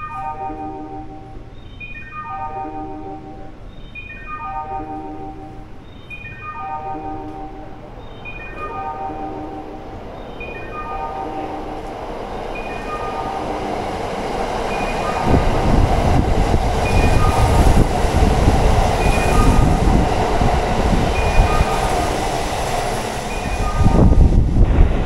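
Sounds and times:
station chime melody: 0.0s - 14.0s, 14.6s - 15.9s, 16.8s - 17.9s, 18.9s - 19.9s, 21.1s - 22.2s, 23.3s - 24.2s
train rumble and wheel clatter: 0.0s - 25.0s.

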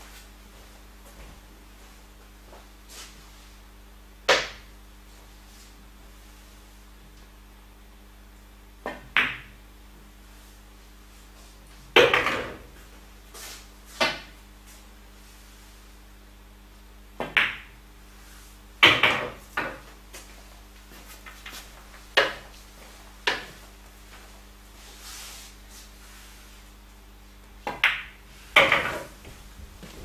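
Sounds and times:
pool balls clacking: 27.7s - 30.0s.

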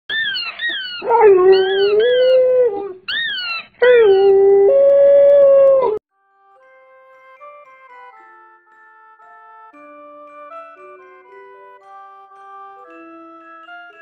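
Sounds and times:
rubber squeaky toy squeaks: 0.1s - 2.4s, 3.1s - 3.8s
dog howling: 0.1s - 6.0s.

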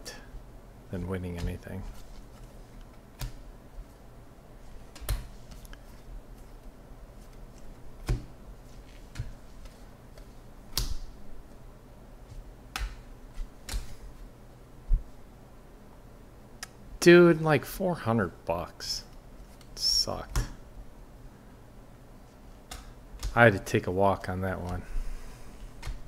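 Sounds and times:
faint room hiss: 0.0s - 26.0s
cards snapping when flipped: 12.7s - 14.0s, 22.7s - 23.4s.

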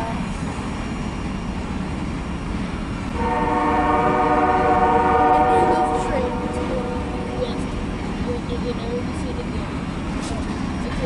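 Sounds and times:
locomotive air horn blast: 3.1s - 7.6s.

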